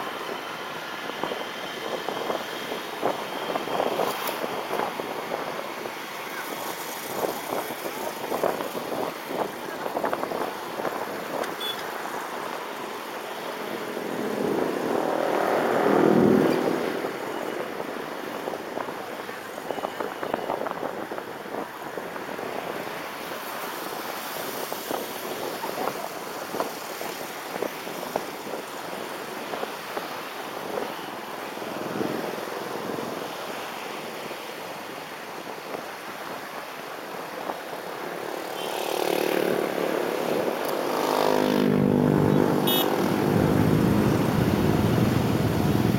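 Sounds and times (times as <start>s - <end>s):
road traffic rush: 0.0s - 45.9s
loud vehicle passing: 13.7s - 17.2s, 38.9s - 45.9s
motorcycle engine: 40.8s - 45.9s.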